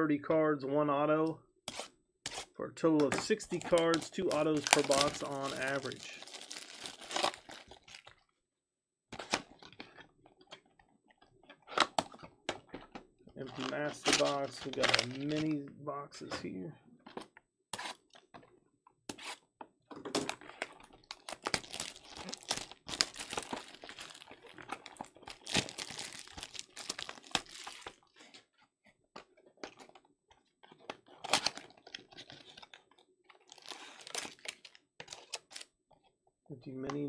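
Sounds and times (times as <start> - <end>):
plastic wrap crinkling and tearing: 3.4 - 8.2, 13.4 - 15.4, 20.3 - 28.2, 30.8 - 35.7.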